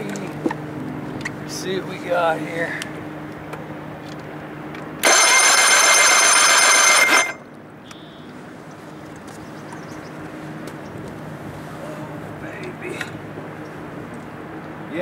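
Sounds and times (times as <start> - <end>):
electric starter cranking engine: 5.0 - 7.4.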